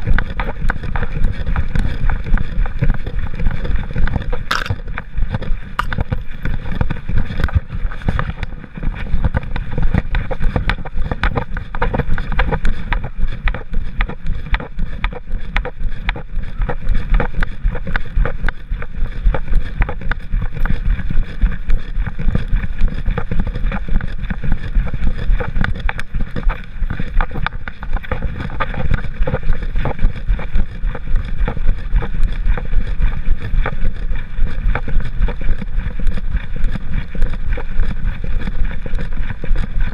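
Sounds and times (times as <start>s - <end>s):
wind rumble on microphone: 0.0s - 39.9s
camera mount rubbing and knocking: 3.9s - 8.5s.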